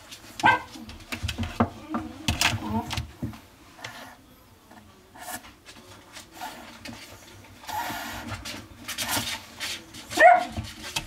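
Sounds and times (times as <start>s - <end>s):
puppy claws scratching on plastic: 6.2s - 11.0s.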